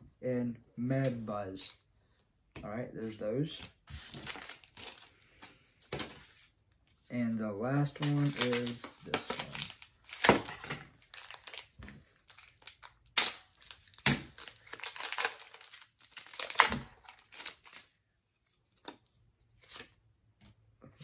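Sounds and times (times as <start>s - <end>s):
foil wrapper crinkling: 7.9s - 17.9s.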